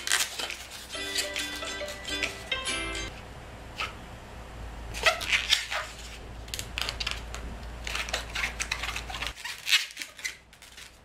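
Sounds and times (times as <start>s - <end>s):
rubber balloon being twisted: 0.0s - 2.4s, 4.9s - 11.0s.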